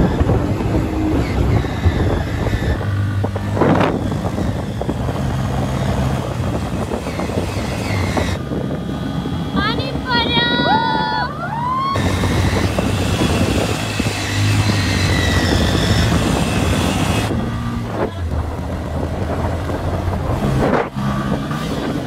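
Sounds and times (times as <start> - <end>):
wind noise on microphone: 0.0 - 22.0
motorcycle engine running: 11.9 - 22.0.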